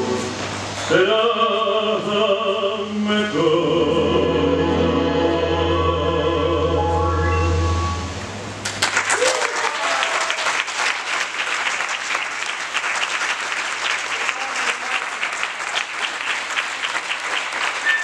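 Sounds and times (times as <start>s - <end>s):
audience clapping: 8.6s - 18.0s.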